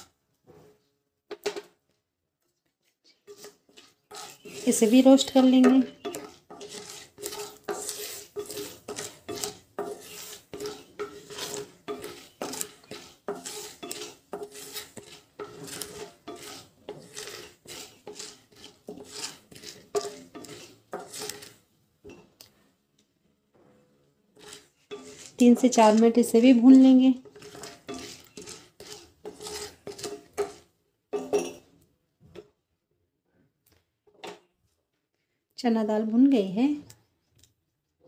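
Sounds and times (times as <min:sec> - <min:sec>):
wooden spatula scraping a pan: 0:00.0 - 0:00.9, 0:02.4 - 0:22.7, 0:23.6 - 0:32.4.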